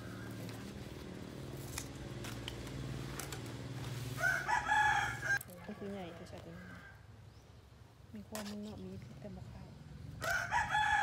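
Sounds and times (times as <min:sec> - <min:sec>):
leaves crackling when handled: 0:00.0 - 0:05.6
rooster crowing: 0:04.2 - 0:07.0, 0:10.2 - 0:11.0.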